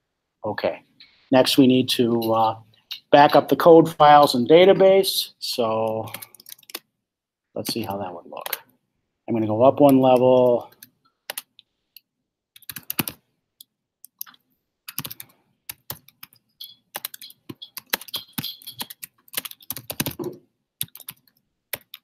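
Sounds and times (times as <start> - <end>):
typing on a computer keyboard: 5.8 - 6.9, 9.9 - 11.5, 12.6 - 13.2, 14.0 - 22.0.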